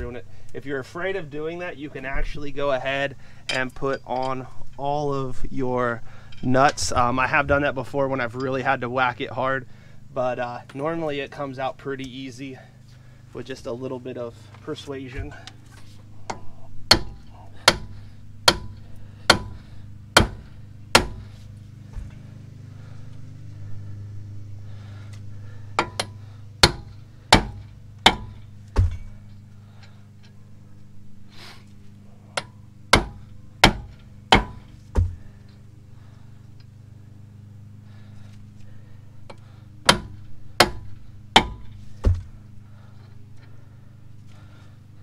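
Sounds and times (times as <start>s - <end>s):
sledgehammer striking metal: 16.3s - 21.3s, 25.8s - 29.2s, 32.4s - 35.2s, 39.8s - 42.3s.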